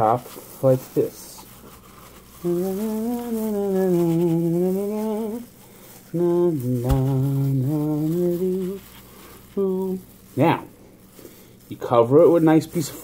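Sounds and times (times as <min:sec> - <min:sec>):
man humming a tune: 0:02.4 - 0:05.5, 0:06.2 - 0:08.8, 0:09.6 - 0:10.0.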